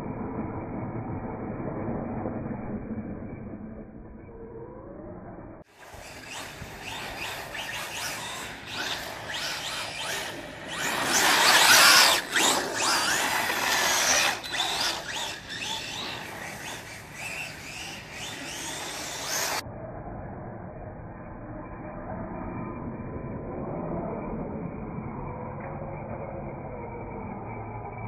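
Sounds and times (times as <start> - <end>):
electric motor whining: 5.8 - 19.6.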